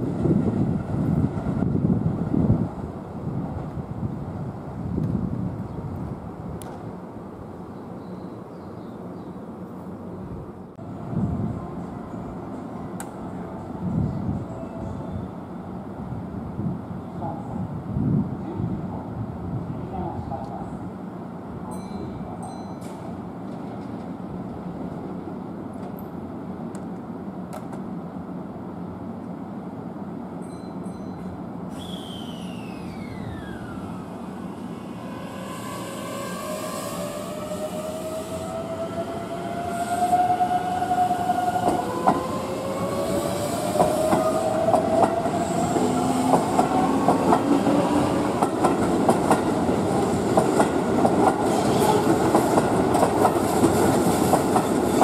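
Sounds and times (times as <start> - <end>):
electric train humming: 10.8 - 17.0, 28.0 - 55.0.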